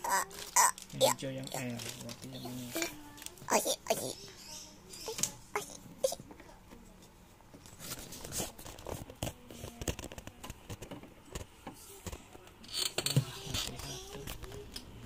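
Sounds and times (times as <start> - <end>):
plastic bag rustling: 1.6 - 3.4.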